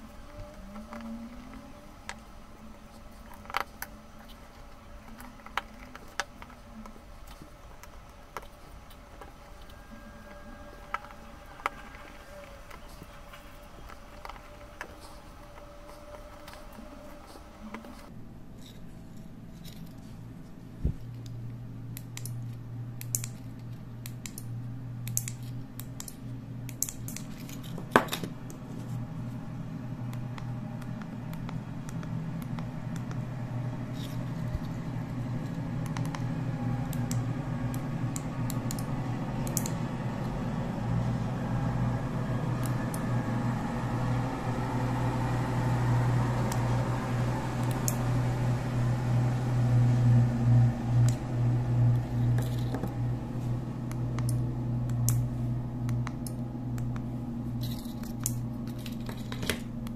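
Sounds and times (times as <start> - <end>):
steady low hum: 0.0 - 59.9
small clicks and scrapes: 0.3 - 21.4, 22.0 - 29.0, 33.9 - 36.3, 51.9 - 53.5, 55.9 - 59.9.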